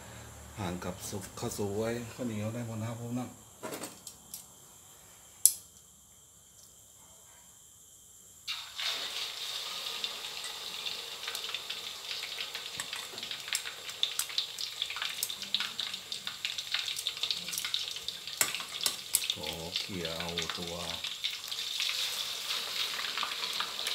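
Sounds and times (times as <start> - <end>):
fish deep-frying in oil: 8.5 - 23.9.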